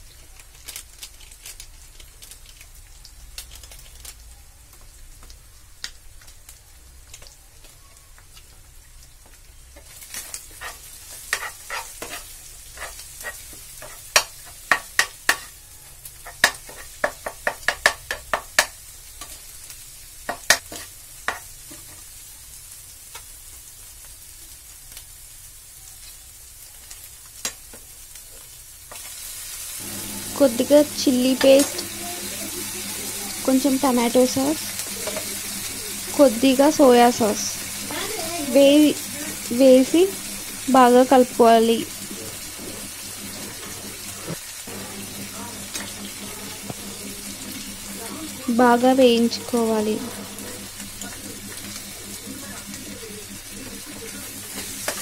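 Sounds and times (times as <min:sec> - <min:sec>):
eggs sizzling in a pan: 0:00.0 - 0:55.0
metal spatula scraping a pan: 0:10.2 - 0:15.6, 0:16.2 - 0:18.2, 0:30.0 - 0:40.7.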